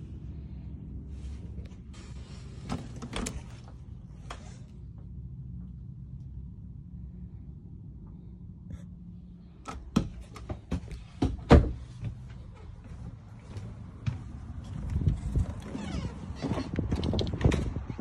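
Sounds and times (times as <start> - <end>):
low steady hum: 0.0 - 16.4
footsteps and door knocks: 9.7 - 17.9.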